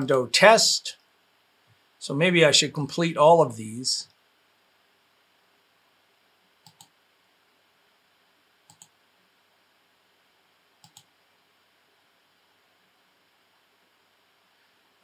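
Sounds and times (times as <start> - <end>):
computer mouse clicks: 6.6 - 6.9, 8.7 - 8.9, 10.8 - 11.1.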